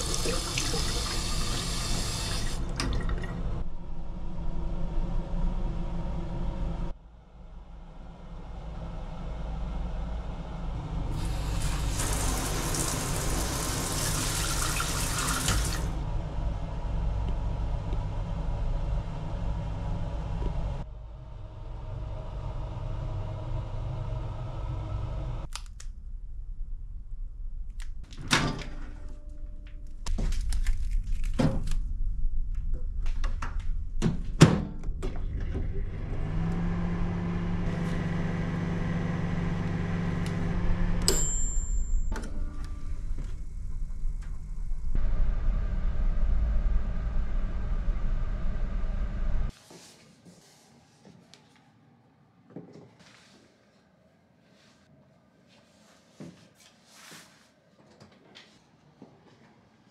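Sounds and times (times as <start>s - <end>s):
water running: 0.0s - 3.6s, 11.1s - 16.0s
microwave humming: 0.0s - 6.9s, 8.9s - 25.5s, 34.5s - 49.5s.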